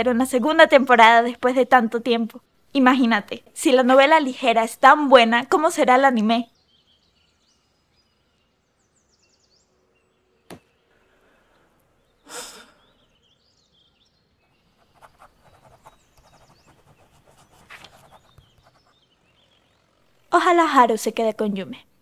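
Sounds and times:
faint bird chirps: 4.2s - 22.0s
person exhaling: 10.9s - 13.0s
pages rustling: 15.0s - 18.9s.

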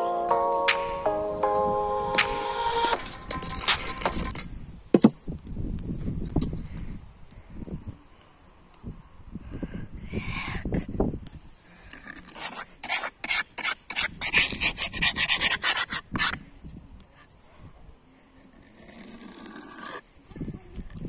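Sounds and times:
plastic mould scraping sand: 11.7s - 16.4s.

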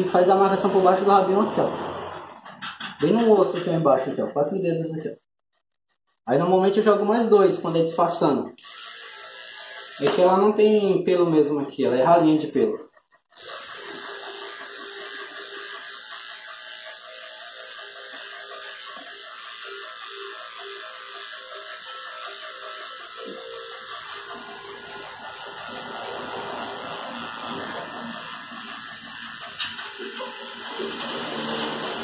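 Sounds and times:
electric hair clipper running: 8.6s - 10.8s, 13.4s - 32.0s.

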